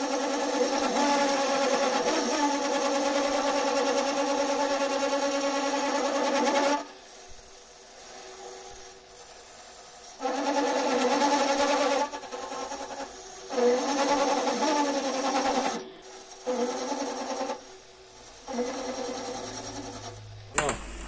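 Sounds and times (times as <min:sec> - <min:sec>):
metal lathe motor whine: 0:18.4 - 0:21.0.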